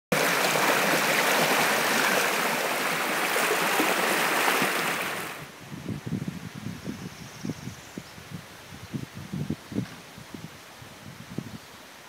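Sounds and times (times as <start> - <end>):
stream rushing over rocks: 0.1 - 5.6.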